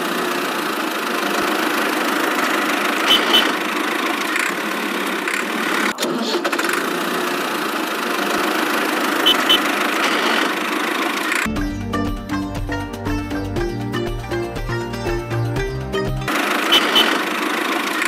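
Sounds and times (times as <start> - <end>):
small engine idling: 0.0 - 11.5, 15.6 - 18.0.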